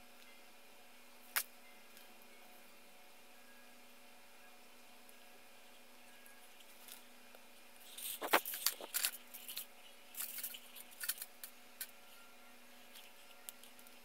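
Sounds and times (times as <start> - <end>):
faint steady hum: 0.0 - 14.0
plastic parts clicking and rattling: 7.8 - 12.0.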